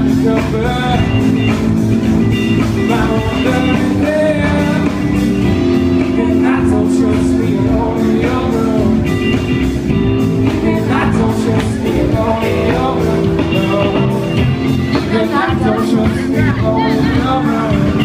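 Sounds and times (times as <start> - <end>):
rock band playing loudly: 0.0 - 18.0
woman singing: 10.4 - 18.0.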